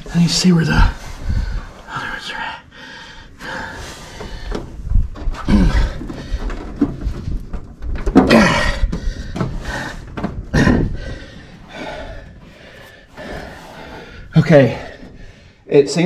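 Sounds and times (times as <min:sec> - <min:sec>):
knocks and rustling: 0:04.1 - 0:11.0
man grunting with strain: 0:08.3 - 0:08.9.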